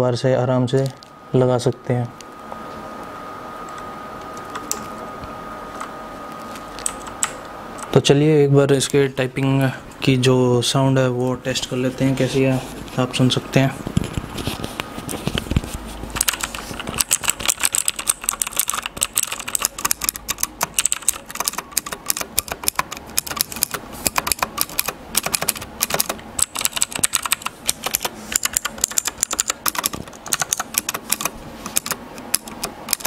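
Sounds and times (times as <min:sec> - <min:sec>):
mechanical keyboard clicking: 0:16.2 - 0:33.0.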